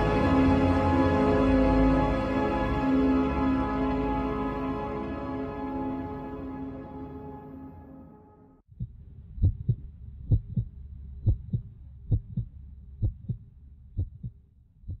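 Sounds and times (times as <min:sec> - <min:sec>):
heartbeat thumps: 0:08.7 - 0:15.0.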